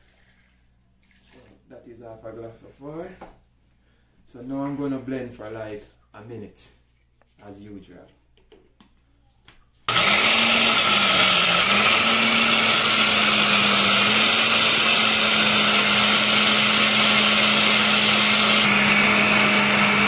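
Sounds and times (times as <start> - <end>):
blender running: 9.9 - 20.0.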